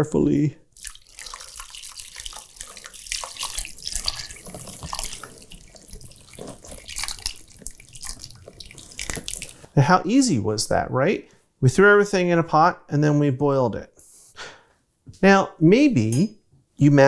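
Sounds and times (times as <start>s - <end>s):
stock pouring and splashing: 0.7s - 9.8s.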